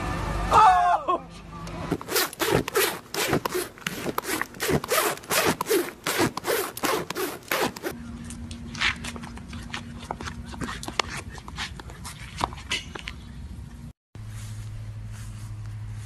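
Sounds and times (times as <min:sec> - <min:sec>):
horse muzzle rubbing jacket: 0:01.9 - 0:08.0.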